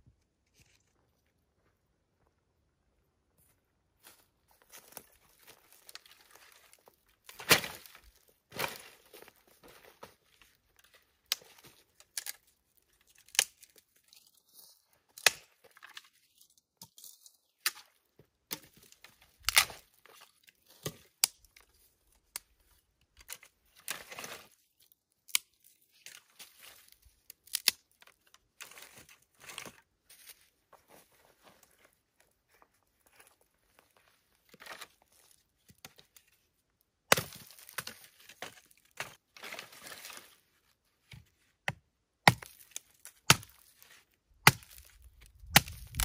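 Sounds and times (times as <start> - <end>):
sticks cracking and snapping: 11.2 - 14.3, 15.2 - 16.1, 18.5 - 19.8, 20.8 - 21.6, 25.3 - 26.3, 27.3 - 29.7, 37.1 - 39.2, 42.2 - 43.7, 44.4 - 46.0.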